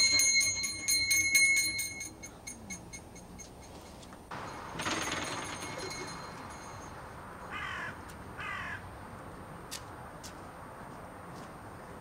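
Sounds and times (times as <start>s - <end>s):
shop door bell jangling: 0.0s - 7.1s
crow cawing: 7.5s - 8.9s.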